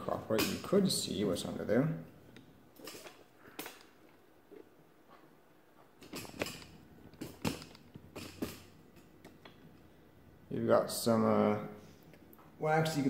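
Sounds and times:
sharp clicks and knocks: 0.3 - 0.8, 2.3 - 9.8.

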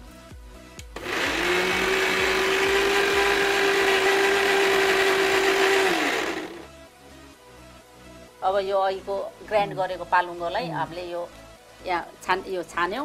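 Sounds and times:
mixer grinder motor whining: 1.0 - 6.7.

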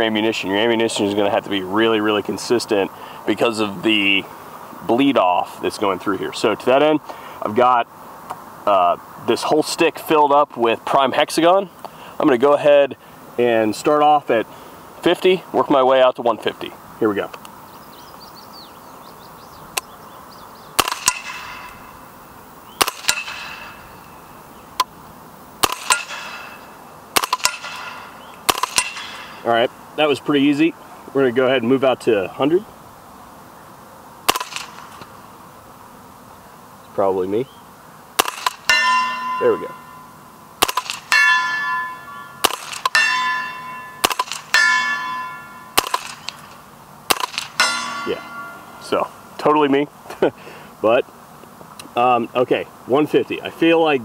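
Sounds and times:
suppressed gunshots: 20.8 - 21.7, 22.8 - 23.8, 25.6 - 26.5, 27.1 - 29.4, 34.3 - 34.9, 38.2 - 38.8, 40.6 - 41.2, 42.4 - 43.0, 44.0 - 44.6, 45.8 - 46.4, 47.1 - 47.8
bullet pinging steel target: 20.8 - 21.8, 22.8 - 23.8, 25.6 - 26.6, 27.2 - 29.4, 34.3 - 34.8, 38.2 - 46.4, 47.1 - 48.8.

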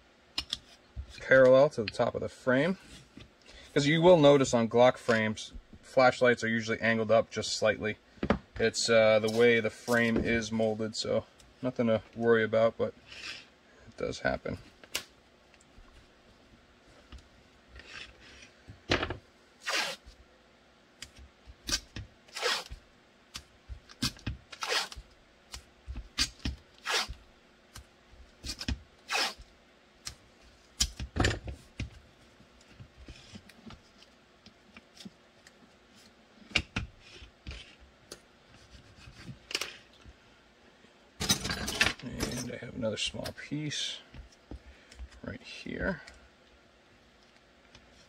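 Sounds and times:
tape pulled and rubbed: 19.6 - 20.2, 21.6 - 22.8, 24.0 - 25.1, 26.1 - 27.2, 28.4 - 29.5.

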